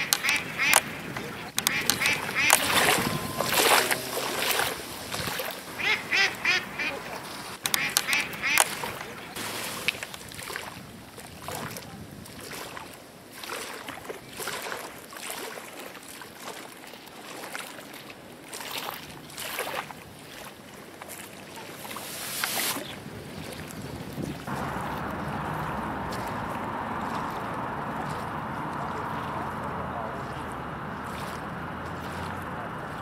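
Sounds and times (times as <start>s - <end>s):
ducks quacking: 0.0s - 9.4s.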